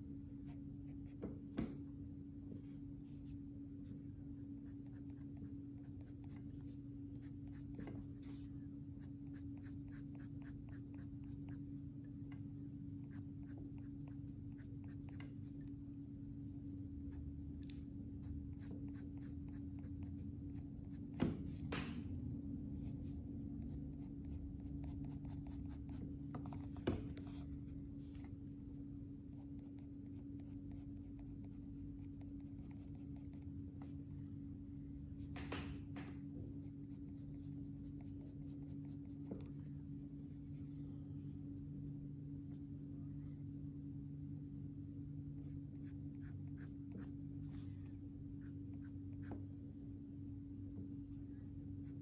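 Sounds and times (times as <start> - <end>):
steady low hum: 0.0 - 52.0
pencil scratching on paper: 4.3 - 11.8, 13.0 - 15.7, 17.6 - 21.9, 22.8 - 28.4, 29.3 - 34.0, 36.5 - 40.6, 45.4 - 47.7, 48.4 - 49.4.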